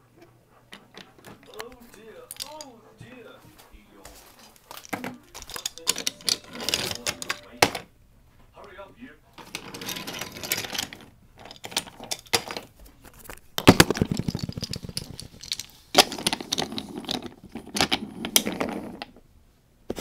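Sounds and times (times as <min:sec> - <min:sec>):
wooden toy trains clattering: 0:00.0 - 0:07.9, 0:09.4 - 0:19.2
fast run of clicks: 0:13.6 - 0:18.5.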